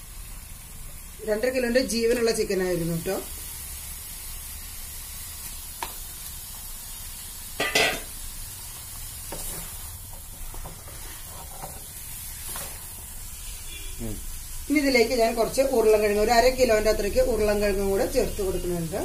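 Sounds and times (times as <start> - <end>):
chicken sizzling in a pan: 0.0 - 19.0
wooden spatula scraping a pan: 9.3 - 12.9.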